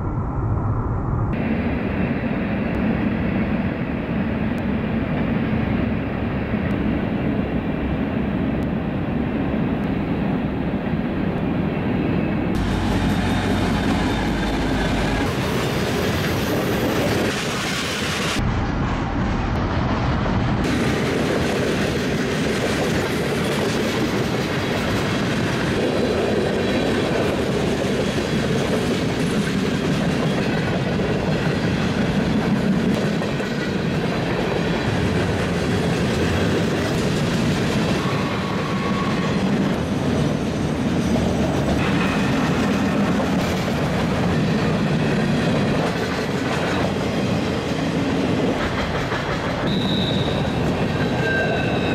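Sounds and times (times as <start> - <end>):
freight train wheels rumbling on rails: 1.3 - 51.9.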